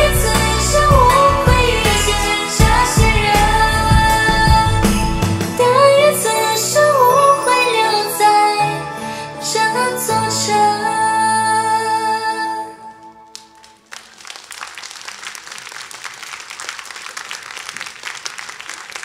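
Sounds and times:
woman singing over backing music: 0.0 - 13.0
audience applauding: 13.3 - 19.0.

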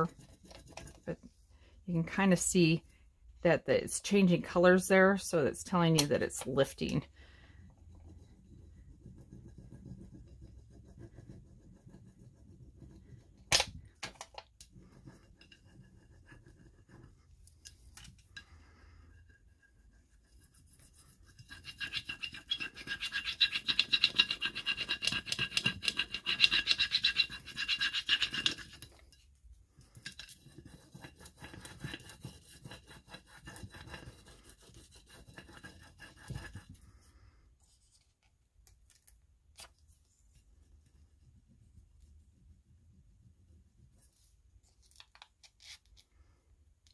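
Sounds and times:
squeaky plastic rubbing on glass: 21.6 - 28.7.

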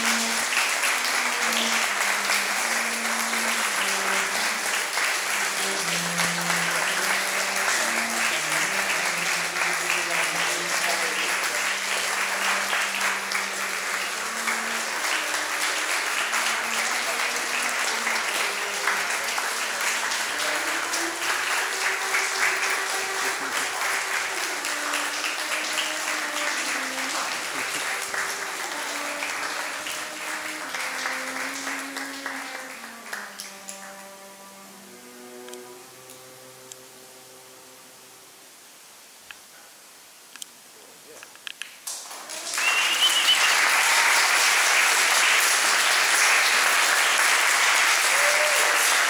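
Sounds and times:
audience applauding: 0.0 - 36.8, 41.7 - 49.0
solo cello playing: 0.0 - 38.4.

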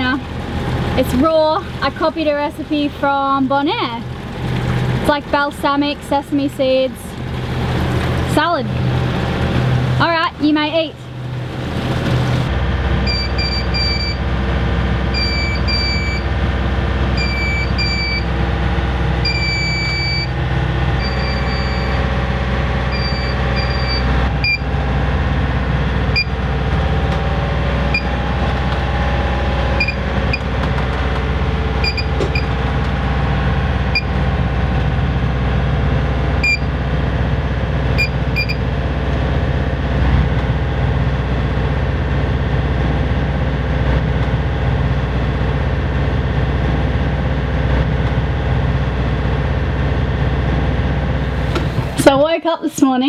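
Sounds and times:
boat engine droning: 0.0 - 53.0.

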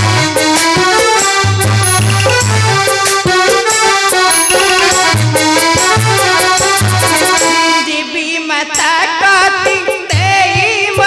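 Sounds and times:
reed instrument melody: 1.3 - 7.3
drum beats: 1.6 - 7.4.

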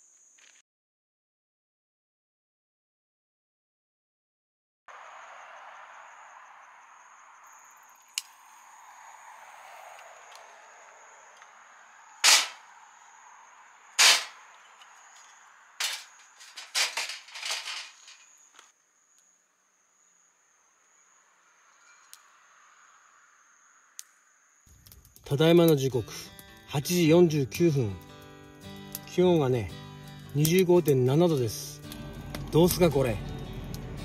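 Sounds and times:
steady rushing hiss: 7.4 - 18.7
loud sharp bangs: 12.2 - 12.7, 14.0 - 14.5, 15.8 - 18.2
rapid cracks: 12.2 - 12.7, 14.0 - 14.5, 15.8 - 18.7.

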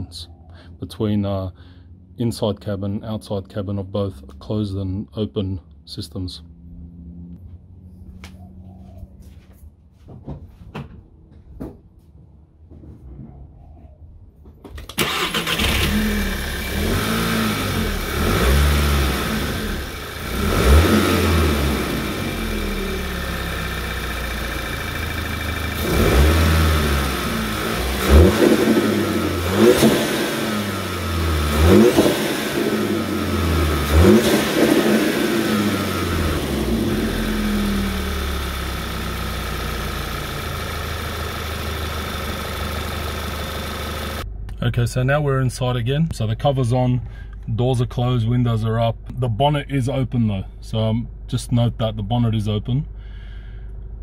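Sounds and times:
car engine revving and idling: 15.0 - 44.8.

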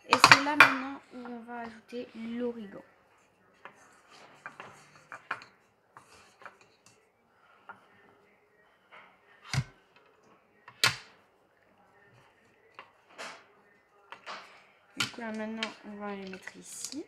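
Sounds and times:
hands clicking on plastic bowl: 0.0 - 0.9.

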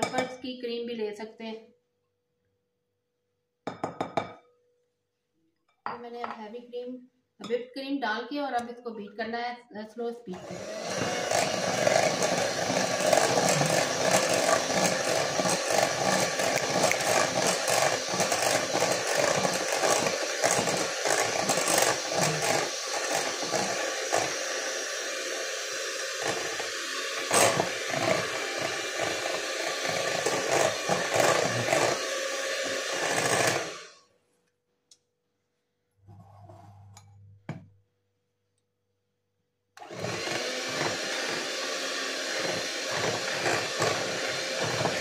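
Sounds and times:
electric mixer whirring: 10.3 - 34.0, 39.8 - 45.0.

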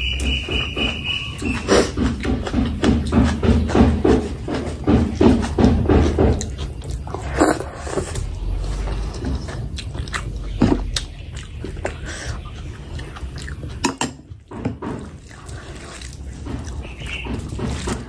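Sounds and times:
wet chewing: 0.0 - 18.0
lip smacks and mouth clicks: 9.1 - 14.2.

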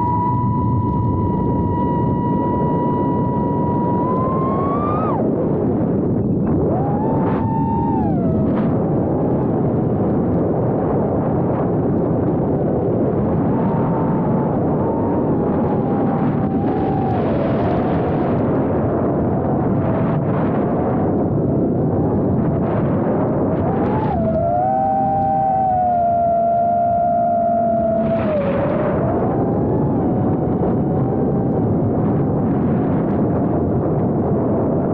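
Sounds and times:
drone motors buzzing whine: 0.0 - 9.6, 13.0 - 20.0
wind rush on microphone: 0.0 - 34.9.

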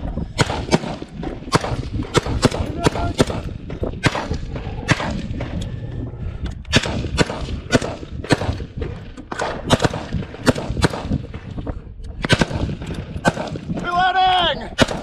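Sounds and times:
rifle shots: 0.4 - 5.5, 6.7 - 11.5, 12.2 - 13.8, 14.8 - 15.0.

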